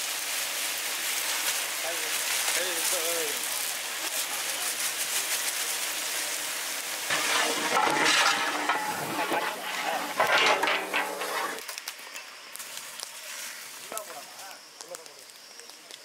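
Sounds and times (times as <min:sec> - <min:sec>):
food sizzling in a pot: 0:00.0 - 0:16.0
scraping and clinks in pot: 0:07.1 - 0:11.6.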